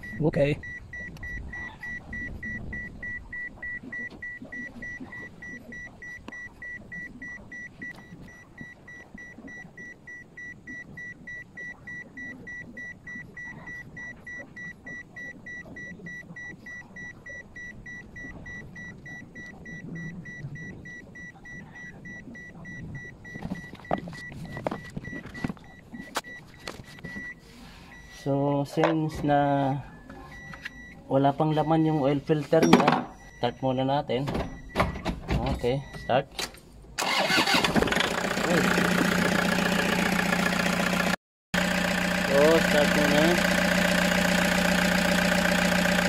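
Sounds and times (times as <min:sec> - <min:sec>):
high-pitched warning chime beeping: 0:00.0 - 0:28.3.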